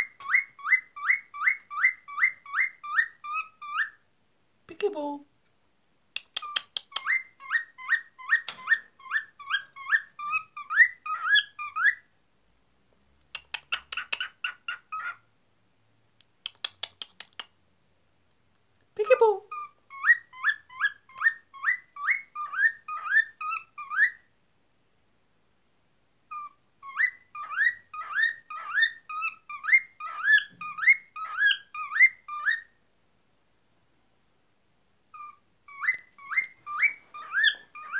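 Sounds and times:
cockatiel whistling: 0.0s - 4.0s, 6.4s - 12.0s, 19.5s - 24.2s, 26.3s - 32.7s, 35.1s - 37.9s.

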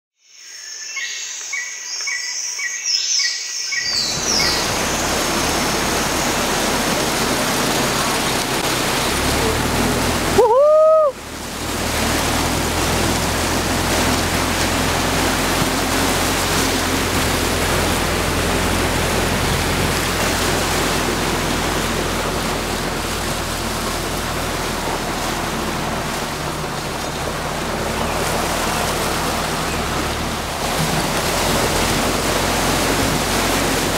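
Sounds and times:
birds chirping: 0.4s - 9.2s
water rushing and splashing: 3.2s - 33.9s
engine running steadily: 3.8s - 33.9s.

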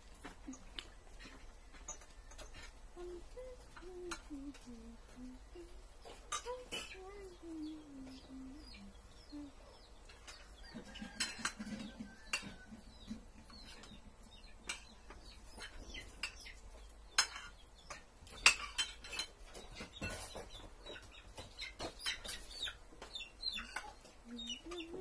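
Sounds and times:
cutlery clinking on plates: 1.2s - 2.8s, 10.1s - 12.9s, 14.6s - 20.5s.

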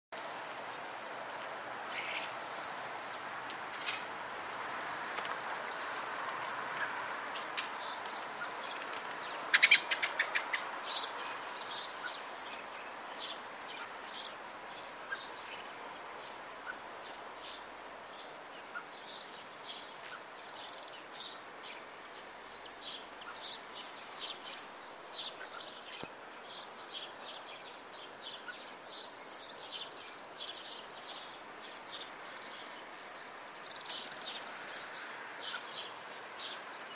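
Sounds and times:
steady background noise: 0.2s - 36.9s
birds trilling calls: 1.4s - 15.8s, 16.4s - 17.8s.

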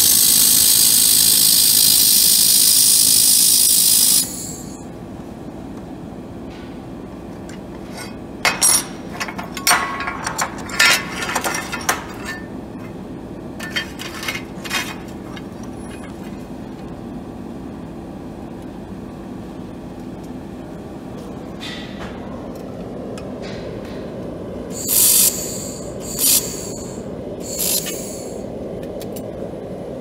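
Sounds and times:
machine hum: 0.0s - 30.0s
steel tubes clanking on metal table: 7.9s - 12.5s.

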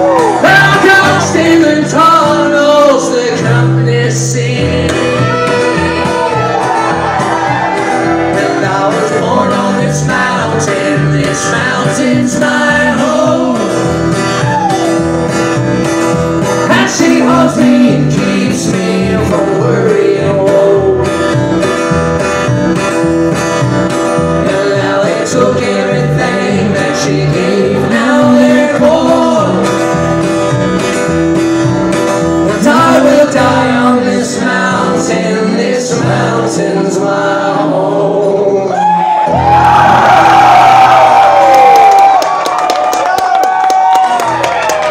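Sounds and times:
strummed acoustic guitar: 0.0s - 38.7s
upright bass: 0.0s - 41.5s.

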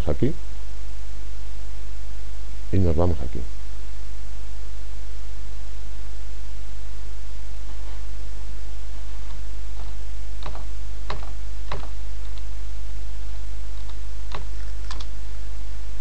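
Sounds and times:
steady low hum: 0.0s - 16.0s
computer keyboard key clicks: 13.8s - 15.1s.

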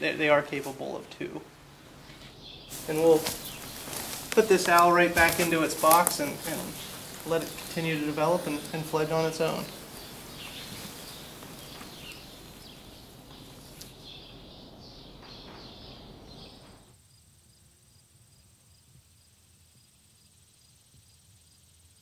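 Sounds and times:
rustling background: 0.0s - 16.9s
insects buzzing: 0.0s - 22.0s
high chirps: 2.0s - 16.8s.

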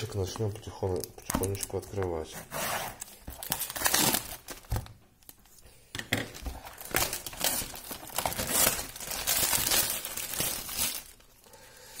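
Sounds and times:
cellophane wrap tearing and crinkling: 3.3s - 4.9s, 6.5s - 11.3s.

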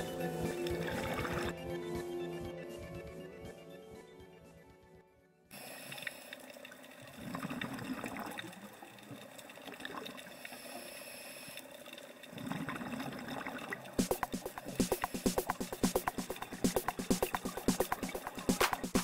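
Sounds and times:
exhaled bubbles underwater: 5.6s - 11.0s, 12.1s - 15.2s
music with quick beat: 14.0s - 19.0s.

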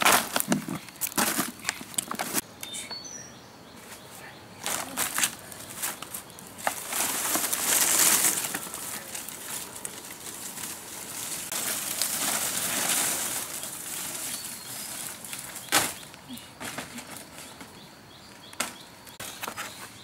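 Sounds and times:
palm leaf dragged over dry leaves: 4.7s - 16.0s.

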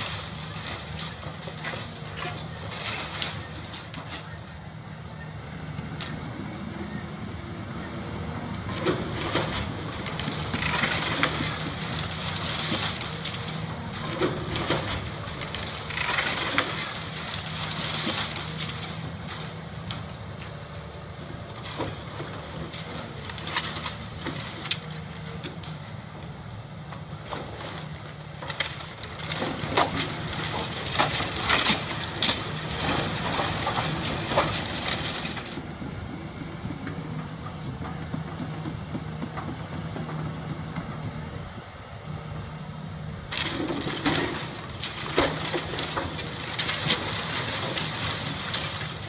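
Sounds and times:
roof tiles and masonry crashing: 0.0s - 4.4s, 8.8s - 19.6s, 27.2s - 35.6s, 43.3s - 49.0s
excavator diesel engine running: 0.0s - 49.0s.

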